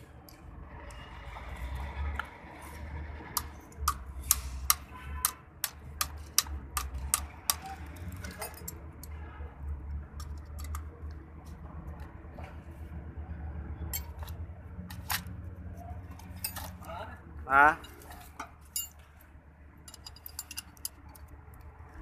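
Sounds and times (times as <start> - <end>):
piston rings clicking: 19.9 - 21.7.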